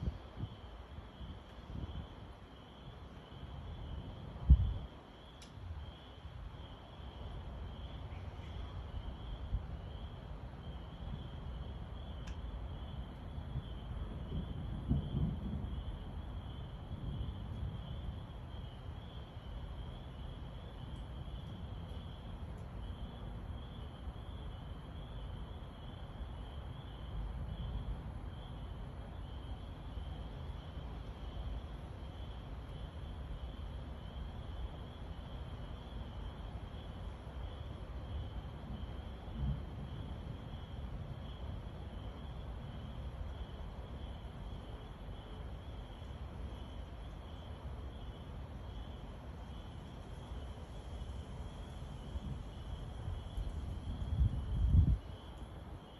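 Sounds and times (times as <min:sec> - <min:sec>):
thunder rumbling: 0:10.9 - 0:25.6, 0:38.5 - 0:43.2.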